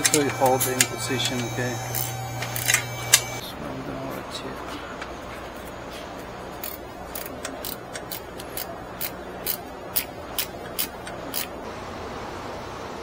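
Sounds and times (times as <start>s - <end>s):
ratchet wrench clicking: 6.6s - 11.6s.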